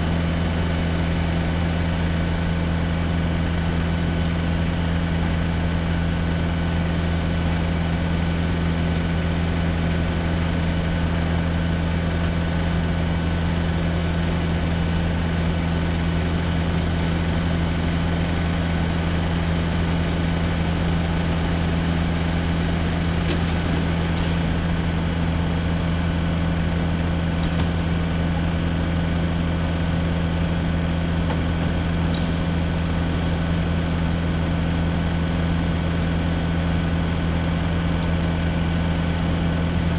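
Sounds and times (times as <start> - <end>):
truck engine running steadily: 0.0 - 39.9.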